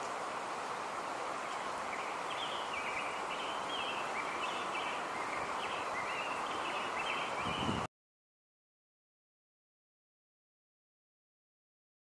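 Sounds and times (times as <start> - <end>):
running water background noise: 0.0 - 7.9
small birds chirping: 0.9 - 7.9.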